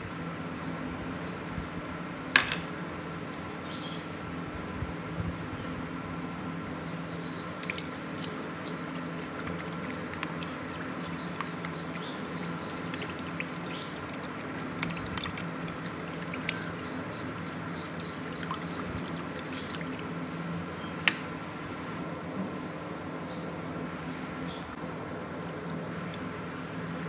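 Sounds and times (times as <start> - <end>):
water trickling and splashing: 7.4 - 20.3.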